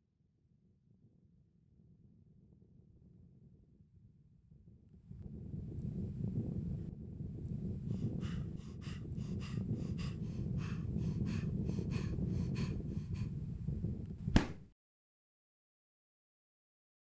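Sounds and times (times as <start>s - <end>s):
low steady rumble: 5.0s - 14.6s
person panting hard: 7.8s - 13.6s.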